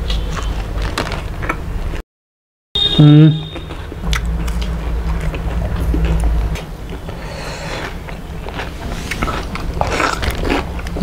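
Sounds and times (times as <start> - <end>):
food crunching: 0.0 - 2.0, 3.5 - 11.0
steady low hum: 2.8 - 11.0.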